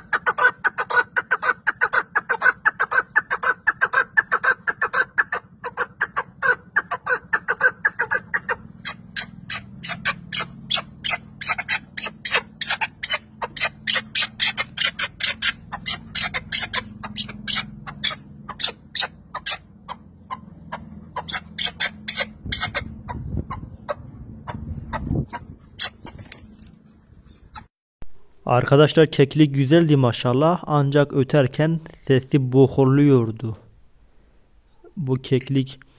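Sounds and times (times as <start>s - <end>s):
partridge calling: 0.0s - 26.4s.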